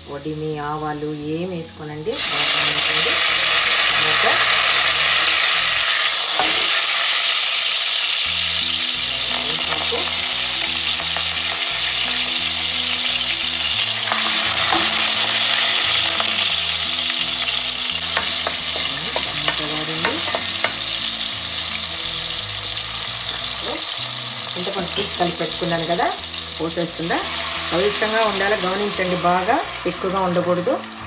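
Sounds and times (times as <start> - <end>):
hot oil sizzling in pot: 0.0 - 31.0.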